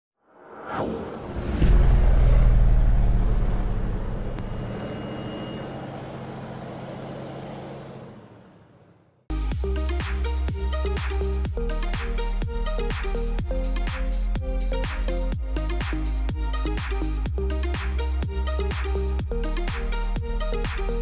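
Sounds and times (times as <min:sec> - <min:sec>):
falling whoosh: 0:00.2 - 0:05.2
deep rumble: 0:00.5 - 0:05.1
electronic music: 0:09.3 - 0:21.0.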